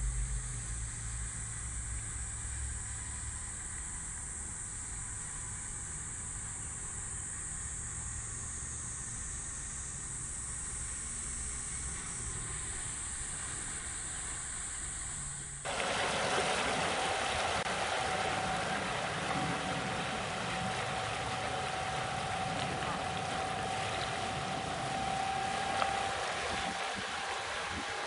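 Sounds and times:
outboard motor whine: 0.0 - 28.0
water and wind rushing: 15.7 - 28.0.

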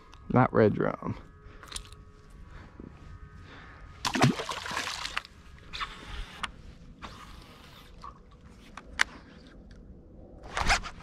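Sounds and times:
fishing rod handling rustling: 1.6 - 2.4, 5.0 - 9.8.

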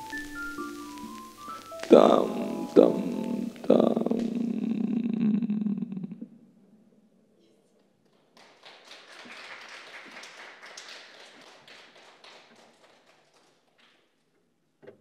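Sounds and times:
audience applauding: 8.1 - 14.2.

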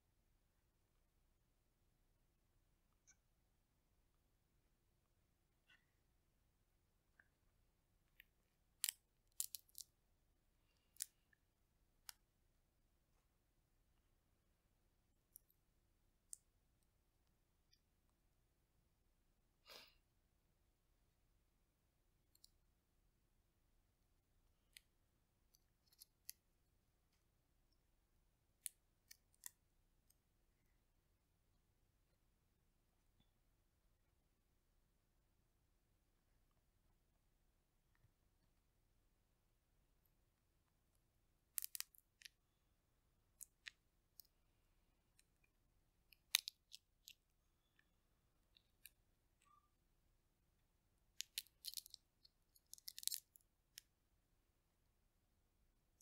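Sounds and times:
chestnut shell crackling: 52.6 - 53.3.

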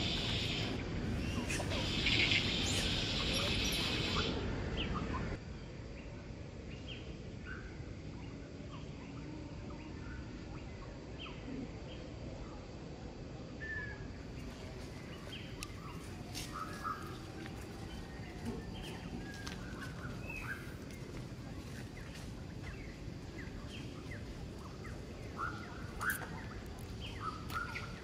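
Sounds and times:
birds chirping: 0.0 - 5.4, 13.6 - 28.0
steady background hiss: 0.0 - 28.0.

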